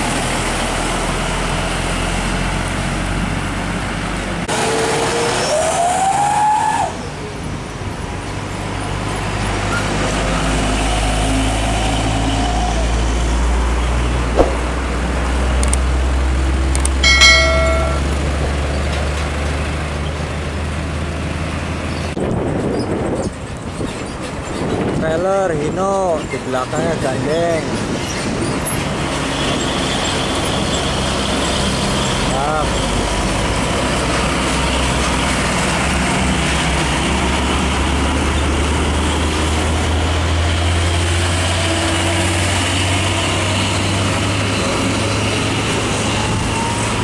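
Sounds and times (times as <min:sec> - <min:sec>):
diesel trucks passing: 0:00.0 - 0:47.0.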